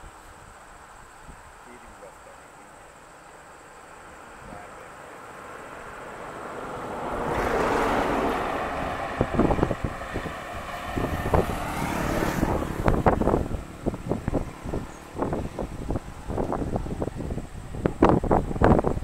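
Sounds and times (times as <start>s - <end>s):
vehicle engine and tyre noise: 0.0s - 19.0s
wind buffeting microphone: 5.8s - 19.0s.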